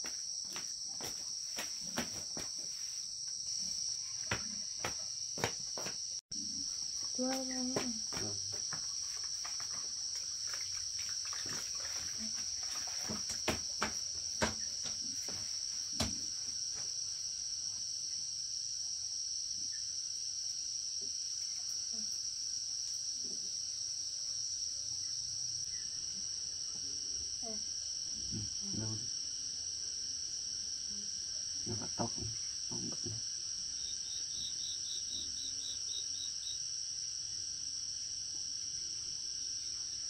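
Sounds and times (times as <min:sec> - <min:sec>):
insects chorus: 0:00.0 - 0:40.0.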